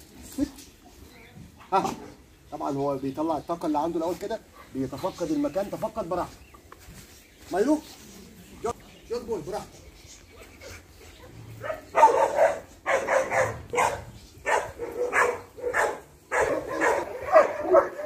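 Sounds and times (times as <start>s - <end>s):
dog barking: 11.6s - 18.0s.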